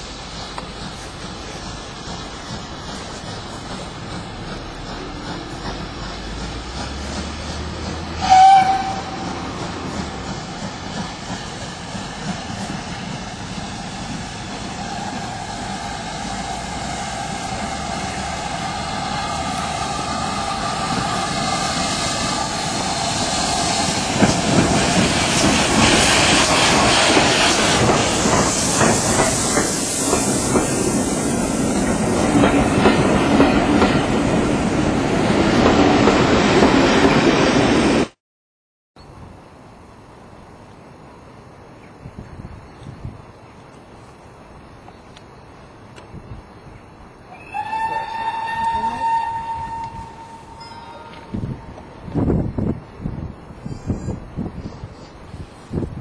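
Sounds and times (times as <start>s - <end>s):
steam train approaching: 0.0s - 38.2s, 42.5s - 56.0s
steam locomotive whistle: 8.2s - 9.4s, 47.3s - 51.4s.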